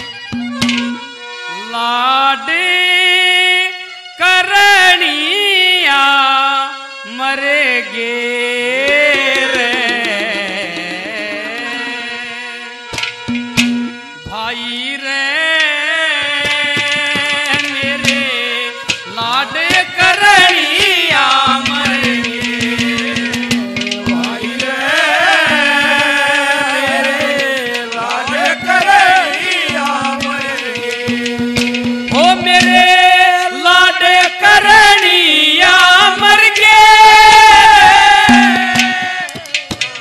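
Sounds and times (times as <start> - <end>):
banjo: 0.0 - 1.6, 8.8 - 14.3, 15.6 - 35.1
clay pot drum strikes: 0.4 - 1.1, 13.0 - 14.1, 16.3 - 33.1, 37.3 - 40.0
man singing folk melody: 1.5 - 12.7, 14.3 - 39.5.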